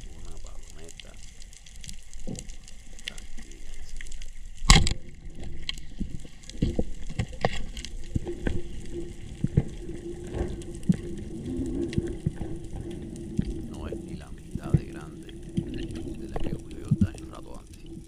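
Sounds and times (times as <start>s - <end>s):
steady low hum: 0.0s - 1.3s, 12.2s - 18.0s.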